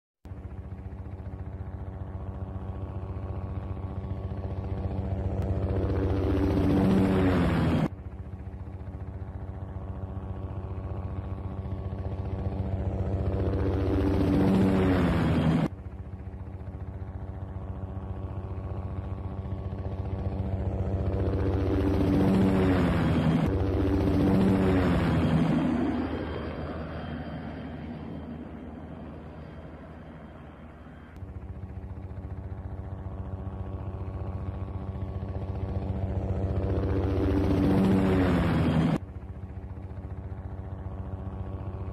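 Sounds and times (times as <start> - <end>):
helicopter rotor beating: 0.2 - 41.9.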